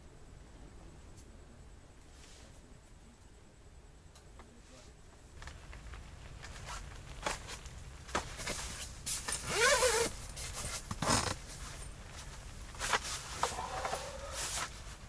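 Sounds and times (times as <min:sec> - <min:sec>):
tent fabric rustling: 0:05.4 - 0:15.0
zipper pulled: 0:08.4 - 0:11.5.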